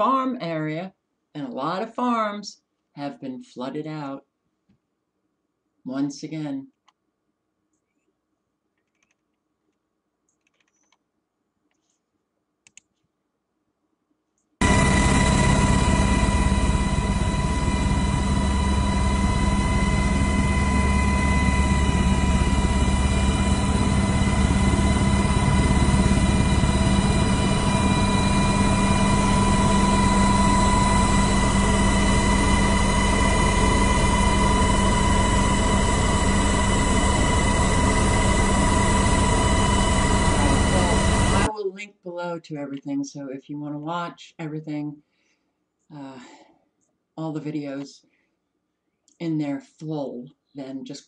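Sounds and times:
aircraft engine drone: 14.6 - 41.5.

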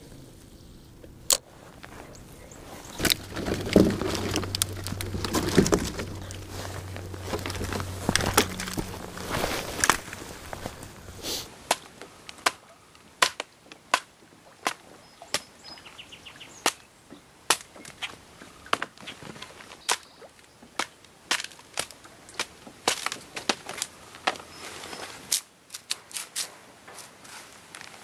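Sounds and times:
wooden cracks and knocks of chopping: 2.9 - 12.6, 13.2 - 15.5, 17.5 - 24.5.

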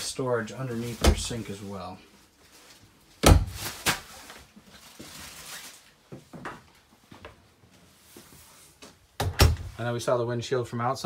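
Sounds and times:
footsteps and handling knocks: 6.0 - 9.8
cabinet door clicking shut: 9.2 - 9.7.

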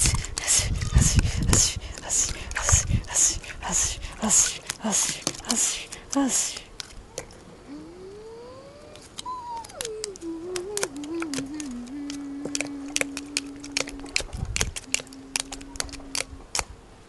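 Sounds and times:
person humming a tone: 7.6 - 16.5.

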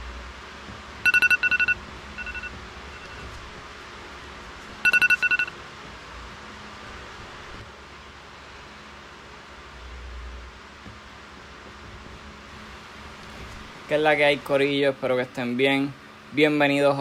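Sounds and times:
phone ringtone beeping: 1.0 - 3.4, 4.8 - 5.6.

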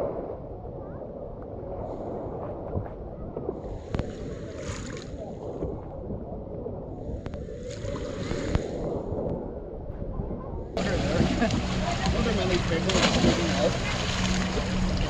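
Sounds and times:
wind rumble on microphone: 0.0 - 15.0
small waves washing ashore: 7.5 - 9.1, 10.8 - 15.0.

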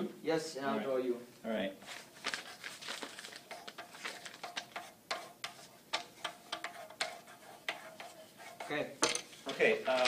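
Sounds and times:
pencil scratching on paper: 3.4 - 8.9.

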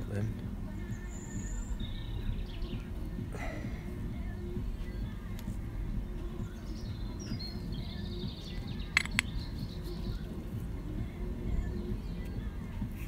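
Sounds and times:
birds chirping: 0.0 - 13.0
sharp clicks of metal parts: 9.0 - 9.3.

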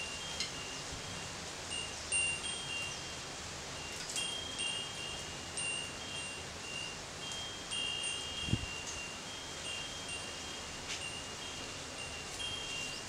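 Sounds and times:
wind chime bells ringing: 0.0 - 3.2, 3.8 - 13.0.

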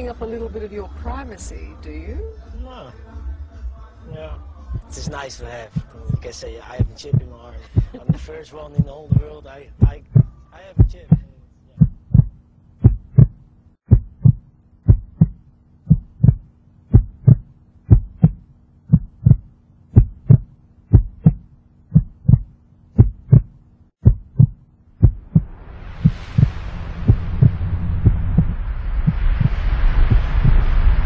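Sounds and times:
faint steady hum: 0.0 - 30.9
heartbeat thumps: 3.6 - 30.9
rumbling roar: 25.2 - 31.0.

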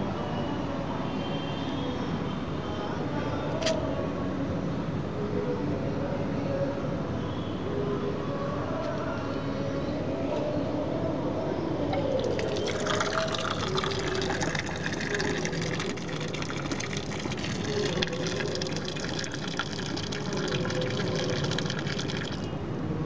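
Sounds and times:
water gushing onto concrete: 12.2 - 22.5.

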